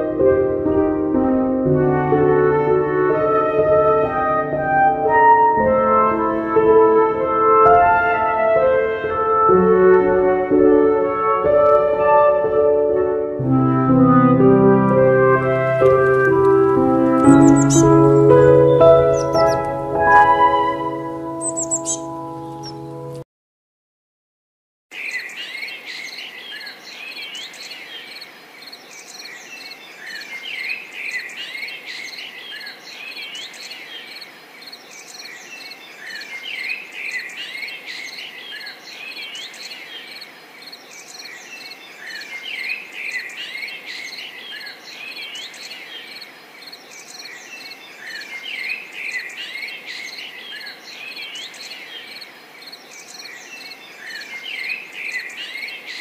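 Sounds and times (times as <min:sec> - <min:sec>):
small birds chirping: 0:17.2 - 0:23.0, 0:24.9 - 0:56.0.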